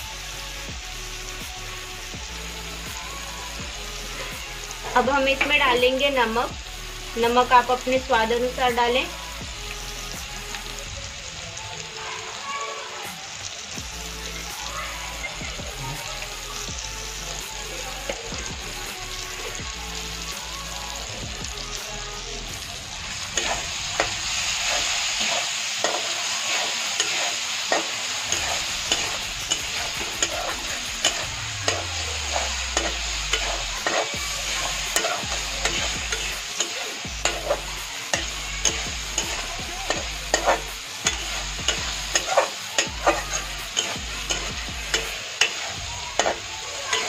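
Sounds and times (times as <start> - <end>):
masala sizzling in oil: 0.0 - 47.0
metal spatula scraping pan: 23.4 - 47.0.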